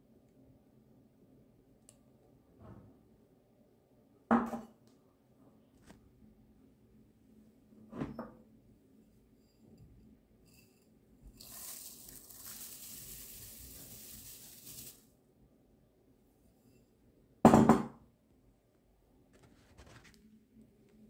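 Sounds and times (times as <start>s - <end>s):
oats pouring into bowl: 11.3s - 15.1s.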